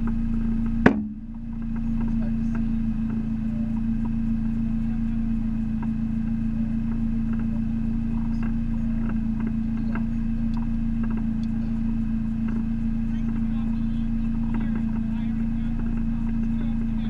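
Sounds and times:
race car engine idling: 0:00.0 - 0:17.0
faint light ticks: 0:08.4 - 0:11.6.

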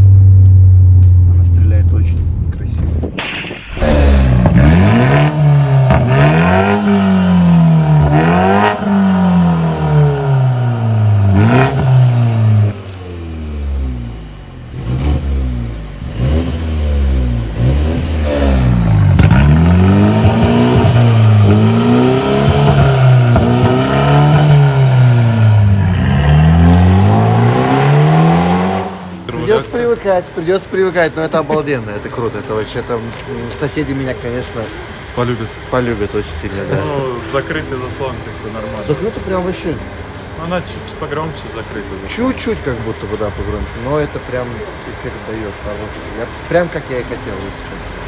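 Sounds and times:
exhaust cracks: 0:00.0 - 0:36.7
car engine revving: 0:00.0 - 0:48.0.

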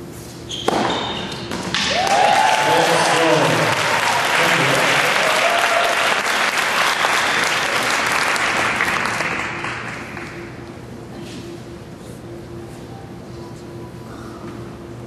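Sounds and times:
crowd applauding: 0:01.7 - 0:10.6.

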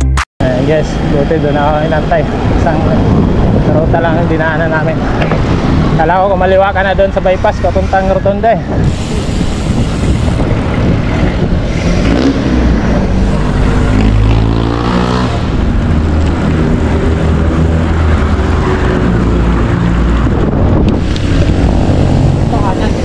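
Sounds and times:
wind rumbling on microphone: 0:00.4 - 0:23.0
vehicle engine passing: 0:10.6 - 0:23.0.

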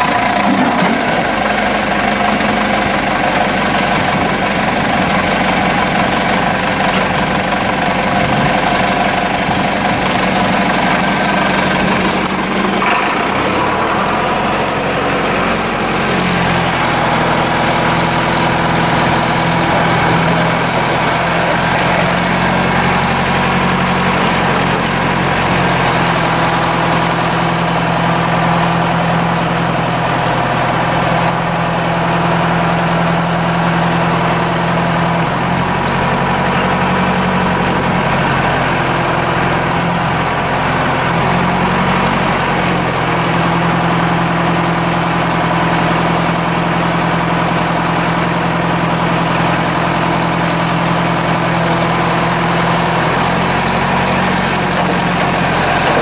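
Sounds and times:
backhoe engine running: 0:00.0 - 0:56.0.

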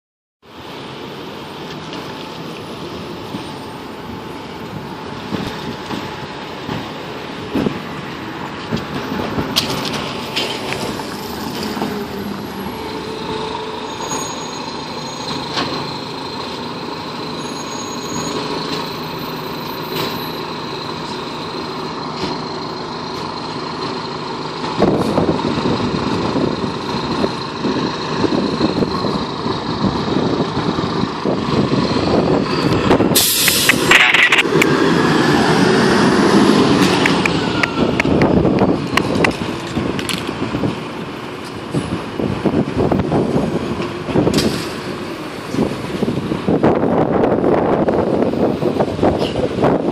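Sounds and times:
fire engine diesel engine running: 0:00.4 - 0:49.9
air-brake hiss: 0:33.1 - 0:34.4.

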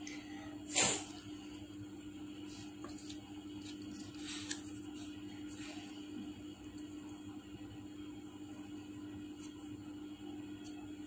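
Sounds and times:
steady low hum: 0:00.0 - 0:11.0
paper rustling and scraping: 0:02.4 - 0:05.8.

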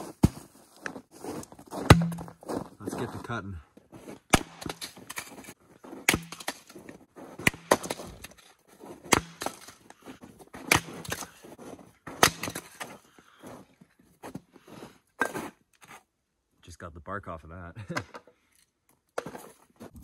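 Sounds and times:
axe chopping firewood: 0:01.8 - 0:02.5, 0:04.3 - 0:13.0.

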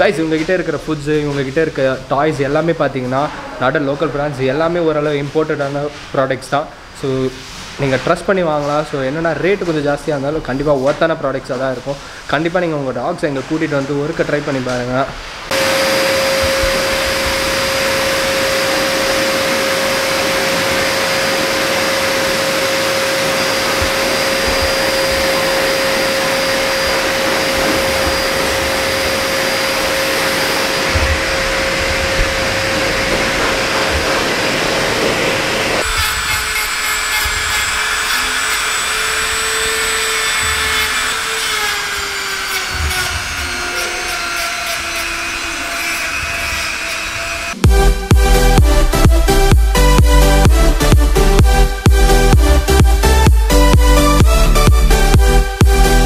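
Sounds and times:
pet dryer blowing air: 0:11.8 - 0:56.0.

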